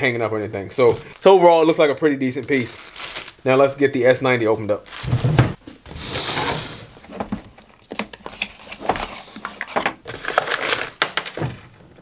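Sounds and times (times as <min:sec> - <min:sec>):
plastic packaging crinkling: 0:00.8 - 0:03.5, 0:04.8 - 0:05.6, 0:07.1 - 0:11.8.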